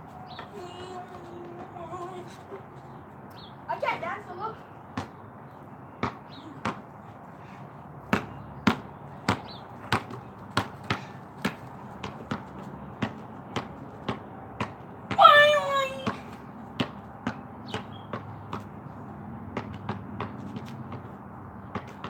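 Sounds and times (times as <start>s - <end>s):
basketball bouncing on concrete: 4.9s - 5.2s, 6.0s - 6.9s, 8.0s - 22.0s.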